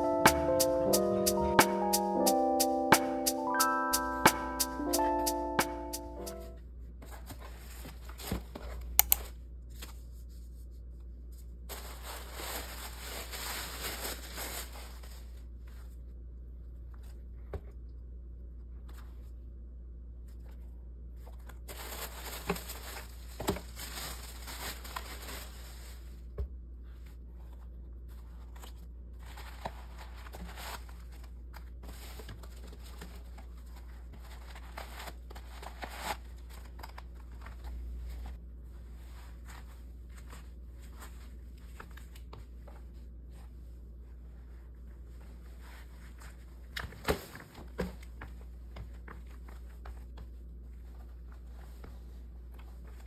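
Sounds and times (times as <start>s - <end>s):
tissue paper crinkling: 11.6s - 15.9s, 21.6s - 26.3s.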